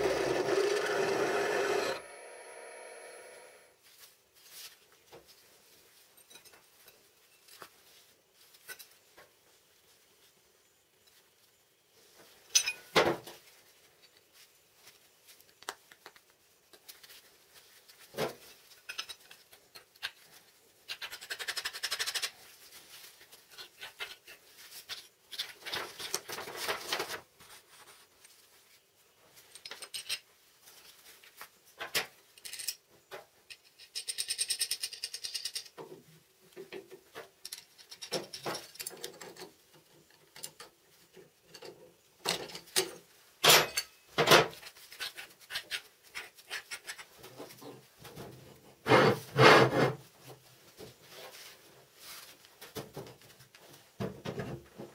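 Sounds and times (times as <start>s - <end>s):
spanner turning a nut: 0.0s - 2.0s
rustling and scraping: 3.8s - 21.2s, 22.0s - 33.4s, 44.4s - 54.9s.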